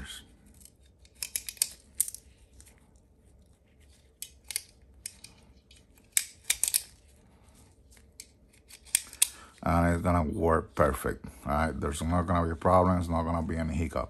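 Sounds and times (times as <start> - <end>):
metallic clicks of magazine handling: 0.5 - 2.3, 4.2 - 7.0, 8.2 - 9.5.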